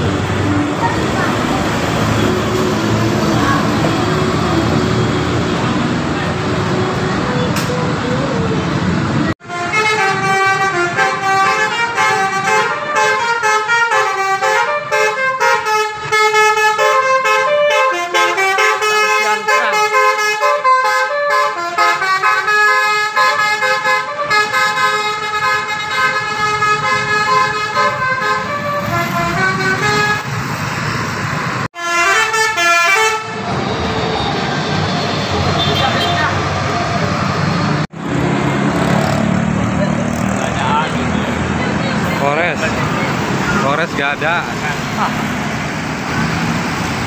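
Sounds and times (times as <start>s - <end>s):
air horn playing a tune: 9.4s - 30.3s, 31.8s - 33.5s.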